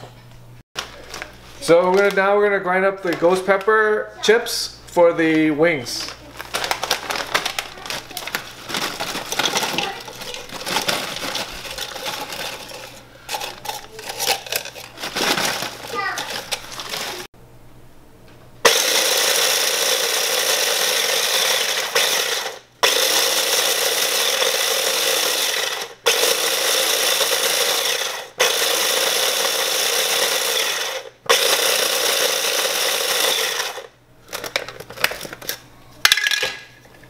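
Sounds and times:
electric food chopper grinding: 0:06.4 - 0:17.3, 0:18.6 - 0:34.6
plastic clicks and clatter: 0:34.3 - 0:37.0.

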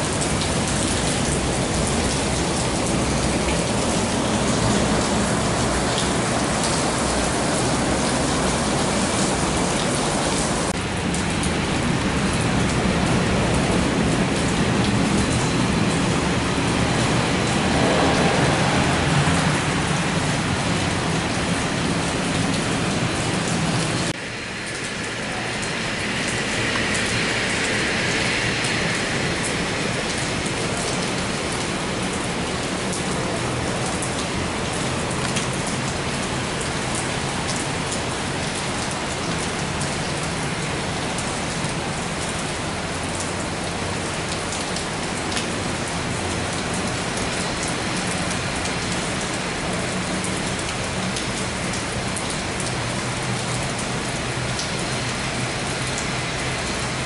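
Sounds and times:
heavy rain hissing: 0:00.0 - 0:57.0
jet engine on runway: 0:24.2 - 0:30.8.

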